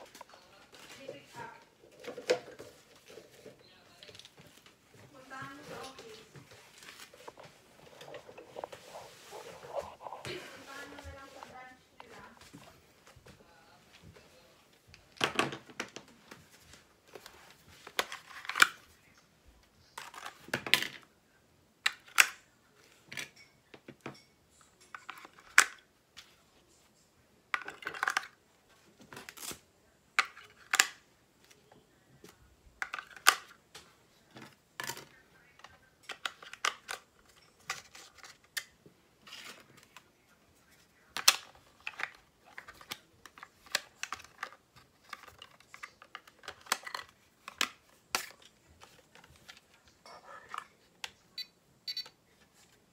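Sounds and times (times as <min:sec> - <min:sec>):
plastic parts clicking and tapping: 0:41.1 - 0:49.7.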